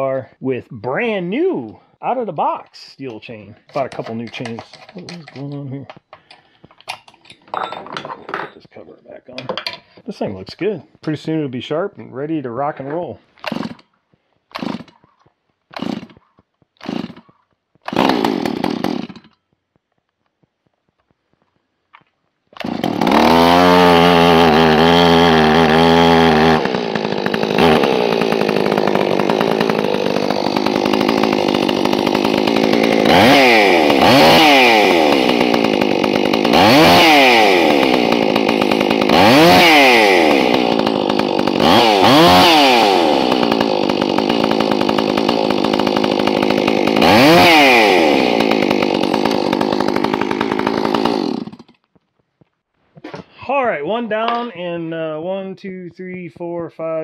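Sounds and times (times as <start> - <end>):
chainsaw running and revving: 13.4 - 13.9, 14.5 - 15.0, 15.7 - 16.2, 16.8 - 19.4, 22.6 - 51.8.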